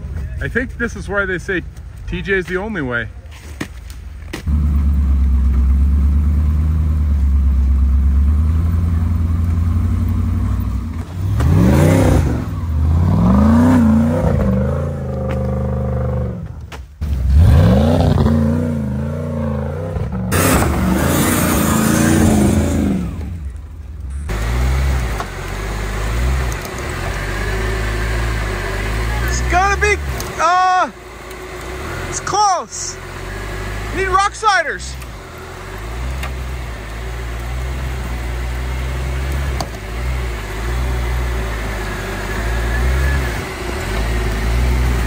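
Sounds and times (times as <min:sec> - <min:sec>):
engines idling: 0:00.0 - 0:45.0
engines revving hard: 0:04.5 - 0:45.0.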